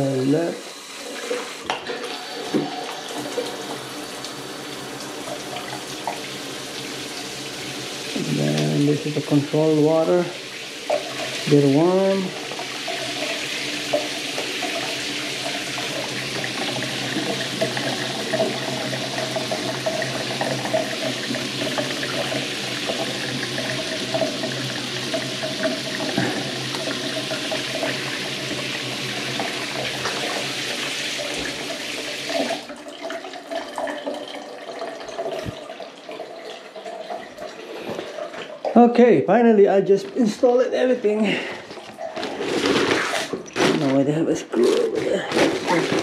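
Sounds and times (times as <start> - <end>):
shower water spraying onto tiles: 0.0 - 32.7.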